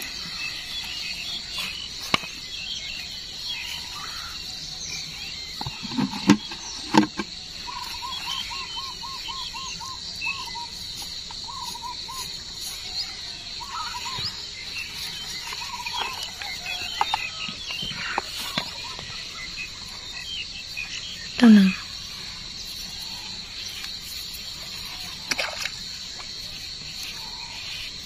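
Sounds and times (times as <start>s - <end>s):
bird calling: 0.0s - 23.9s
crickets chirring: 0.0s - 28.0s
bucket lid knocks: 5.6s - 7.3s.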